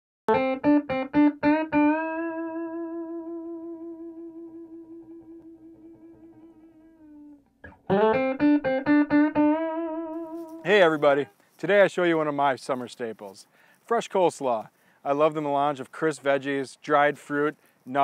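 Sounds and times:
plucked string instrument music: 0.3s - 10.7s.

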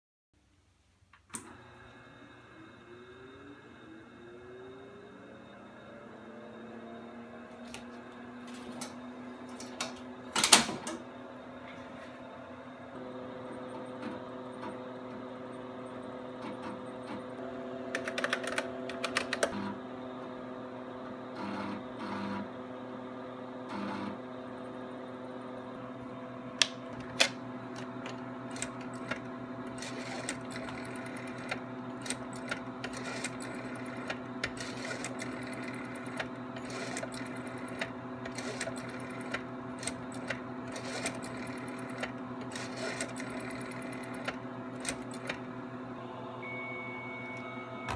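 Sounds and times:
computer humming: 1.4s - 47.9s
disk drive activity: 5.2s - 24.4s, 25.7s - 47.9s
keyboard keystrokes: 17.9s - 19.6s.

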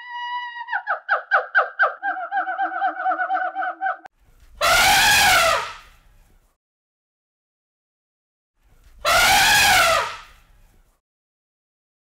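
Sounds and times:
harsh gorilla scream: 4.6s - 5.7s, 9.1s - 10.2s.

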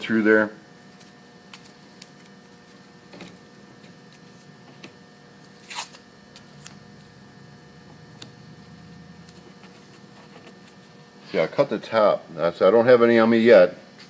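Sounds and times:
tape ripping: 5.5s - 6.8s.

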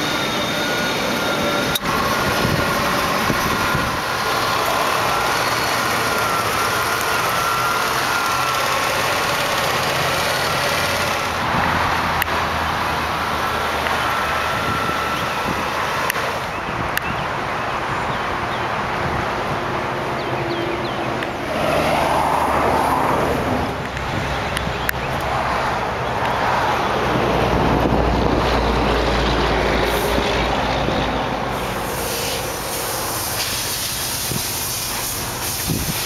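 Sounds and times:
dense background noise: 0.0s - 36.0s
car engine idling: 1.8s - 14.5s.

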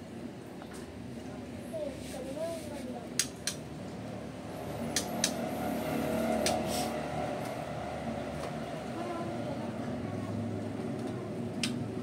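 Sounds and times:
sharp clicks: 3.2s - 3.6s, 4.9s - 5.4s
low engine-like drone: 3.5s - 12.0s.

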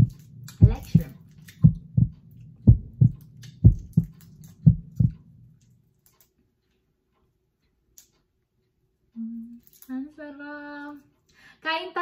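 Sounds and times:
deep double thumps: 0.0s - 5.2s
low hum: 0.0s - 5.8s.

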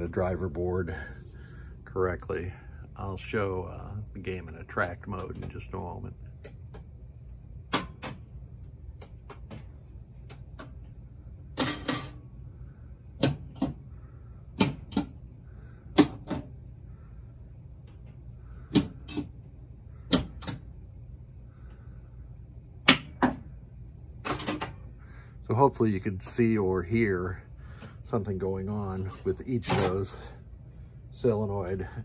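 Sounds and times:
low hum: 0.0s - 32.0s
pinball relays and solenoids clacking: 4.7s - 6.9s, 11.6s - 12.2s.

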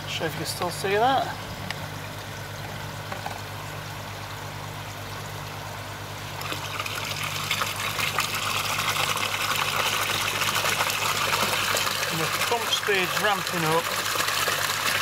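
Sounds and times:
water splashing into pond: 6.2s - 15.0s.

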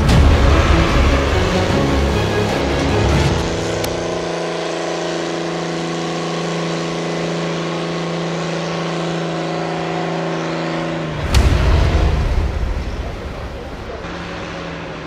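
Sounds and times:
deep loud rumble: 0.0s - 4.1s, 11.2s - 14.6s
truck engine at high revs: 0.0s - 15.0s.

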